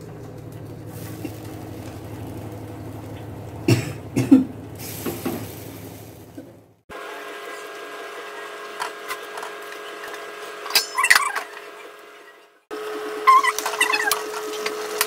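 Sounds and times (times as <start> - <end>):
steady low hum: 0.0 - 6.8
person coughing: 3.7 - 4.6.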